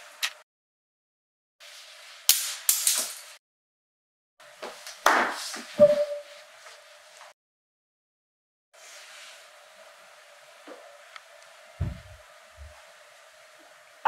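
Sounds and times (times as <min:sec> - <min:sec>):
brief steady tone: 0:05.8 - 0:06.4.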